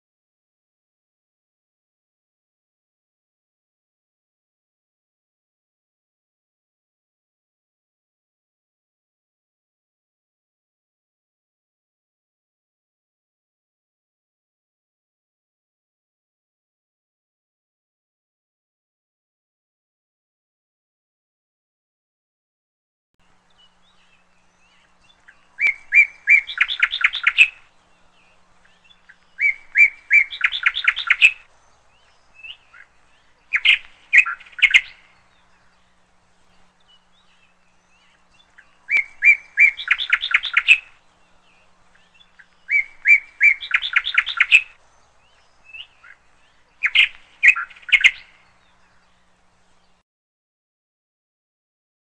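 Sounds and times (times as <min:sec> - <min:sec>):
bird chirping: 0:23.2 - 0:50.0.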